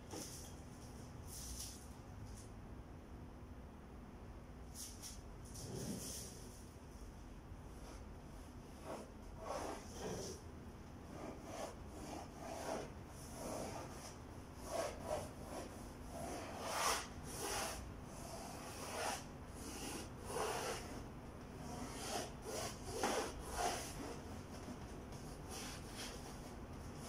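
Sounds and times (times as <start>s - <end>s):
paintbrush scrubbing on canvas: 11.1s - 21.0s, 21.7s - 27.0s.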